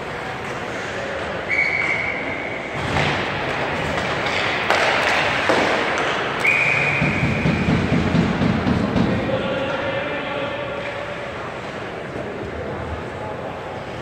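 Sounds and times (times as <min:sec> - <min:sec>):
knocks of sticks and puck: 0:02.8 - 0:09.9
referee's whistle blast: 0:06.4 - 0:07.7.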